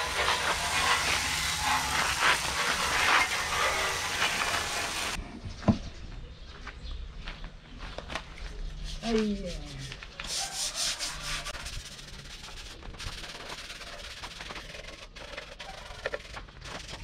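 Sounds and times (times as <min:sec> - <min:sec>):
scrubbing sheet metal with a pad: 0:00.0 - 0:05.2, 0:08.9 - 0:17.0.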